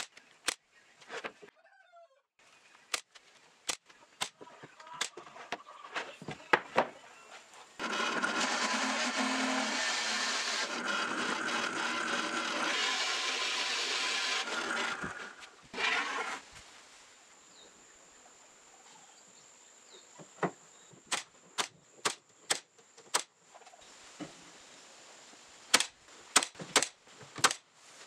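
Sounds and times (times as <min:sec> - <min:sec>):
drill press boring into wood: 0:07.8 - 0:16.4
nail gun firing: 0:25.7 - 0:27.6.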